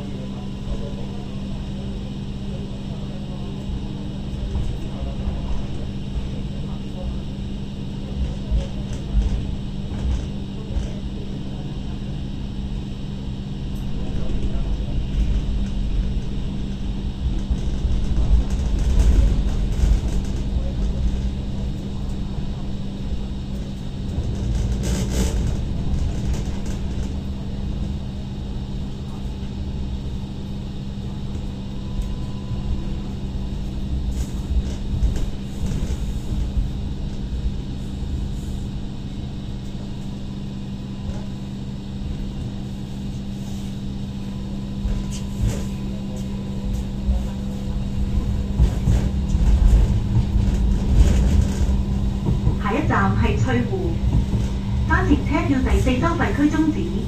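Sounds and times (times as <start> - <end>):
wheels rumbling on rails: 8.1 - 11.8, 13.6 - 39.9, 42.0 - 57.0
motor hum: 44.8 - 57.0.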